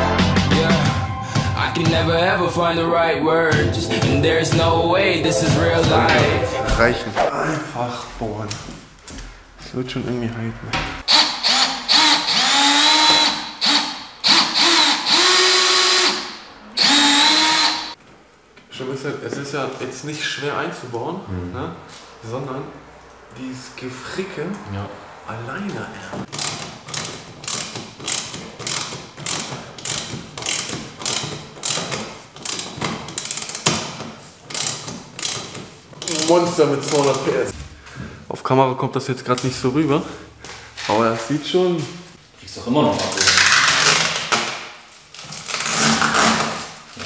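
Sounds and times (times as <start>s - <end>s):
cordless drill whining: 11.1s - 18.0s
ratchet wrench clicking: 26.3s - 33.7s, 34.5s - 37.2s.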